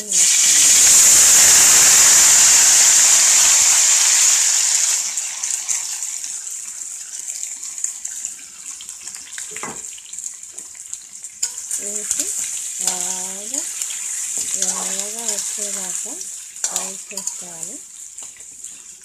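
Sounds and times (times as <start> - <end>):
chicken sizzling in hot oil: 0.0 - 19.0.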